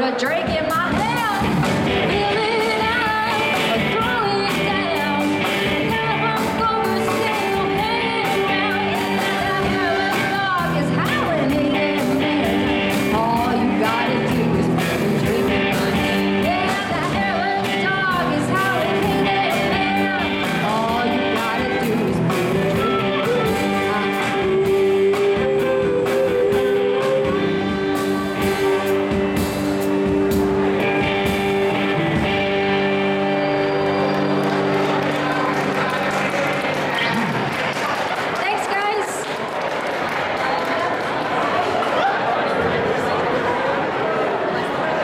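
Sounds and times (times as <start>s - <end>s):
woman singing: 0.0s - 29.0s
live blues-rock band: 0.0s - 38.4s.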